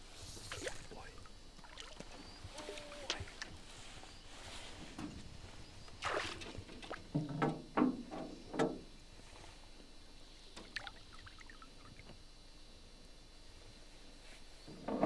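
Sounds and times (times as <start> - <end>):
fish splashing in water: 6.0 - 7.1.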